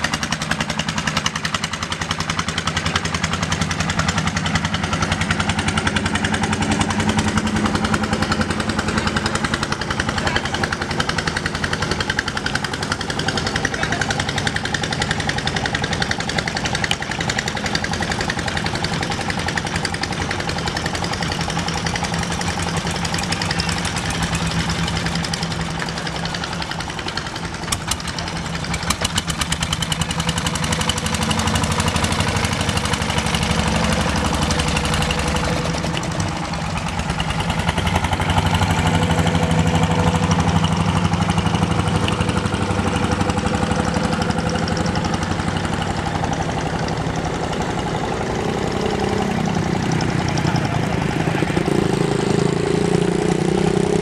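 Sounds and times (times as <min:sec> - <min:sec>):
boat engine chugging: 0:00.0 - 0:54.0.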